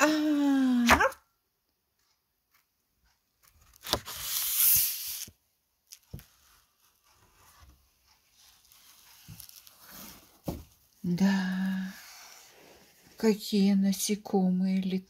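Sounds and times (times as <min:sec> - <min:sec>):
faint paper rustling: 0:02.5 - 0:13.4
paper rubbing hiss: 0:04.1 - 0:05.3.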